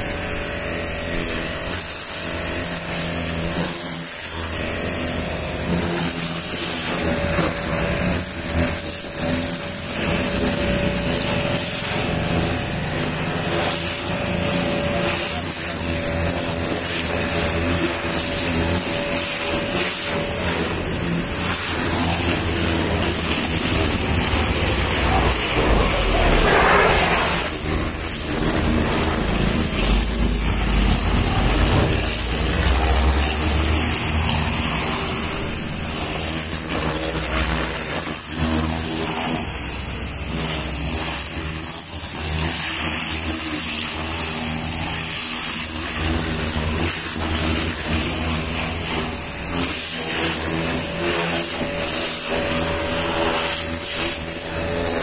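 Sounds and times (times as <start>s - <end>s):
pressure washer motor humming: 0.0s - 55.0s
water jet hissing on surfaces: 19.6s - 37.8s.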